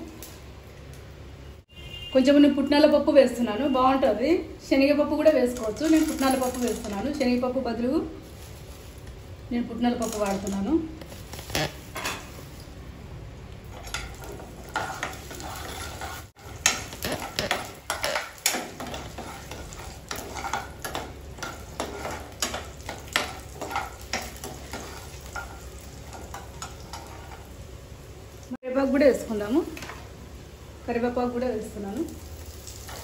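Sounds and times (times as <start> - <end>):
food sizzling in hot oil: 13.6 - 33.0
spoon clicking and scraping pan: 13.7 - 27.4.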